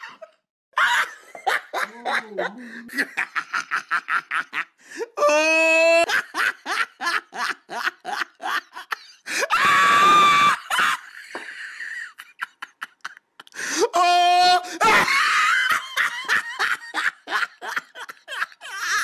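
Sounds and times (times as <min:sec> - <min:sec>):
person laughing hard: 0:00.0 - 0:19.0
shriek of laughter: 0:05.8 - 0:13.2, 0:14.7 - 0:19.0.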